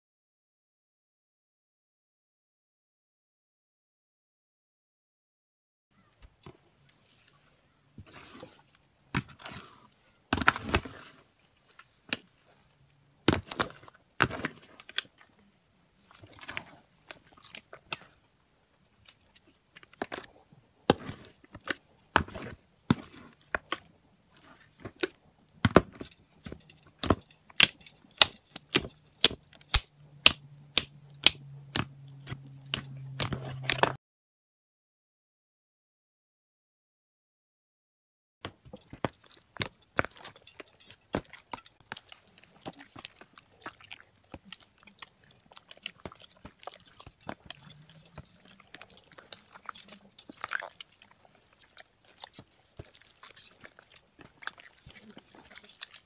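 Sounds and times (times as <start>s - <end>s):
low steady hum: 25.9s - 34.0s
slime squishing with sticky pops: 27.0s - 33.3s.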